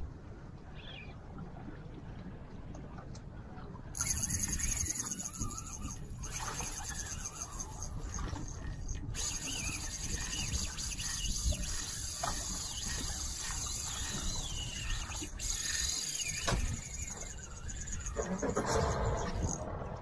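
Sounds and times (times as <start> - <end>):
fishing reel drag clicking: 4.0 - 19.6
wind on microphone: 4.0 - 20.0.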